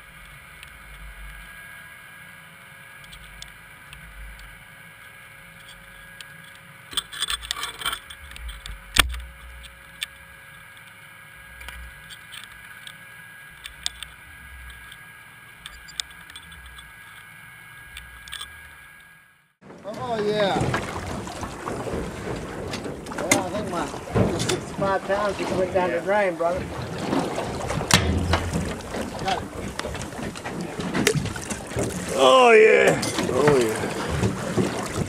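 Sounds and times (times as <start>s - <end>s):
underwater low rumble and hum: 0.0s - 35.0s
clicks and rattles: 22.3s - 24.8s.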